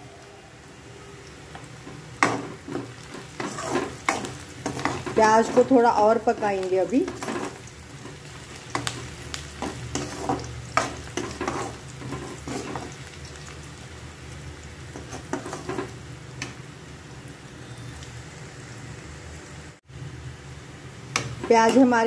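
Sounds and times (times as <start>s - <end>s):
onions sizzling in oil: 0.0s - 22.0s
metal spoon scraping pan: 2.2s - 5.8s, 7.0s - 13.0s, 15.0s - 16.0s.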